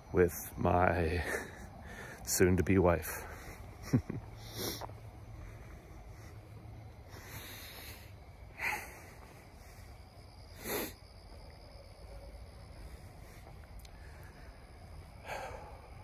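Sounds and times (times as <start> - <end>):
man breathing sharply: 1.2 - 2.3, 4.4 - 11.1, 12.7 - 16.0.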